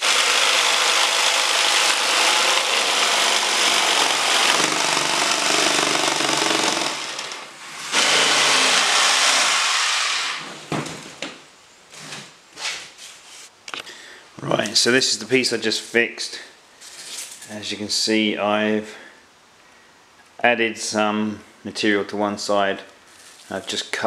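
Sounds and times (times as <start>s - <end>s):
power saw cutting foam: 0.0s - 10.4s.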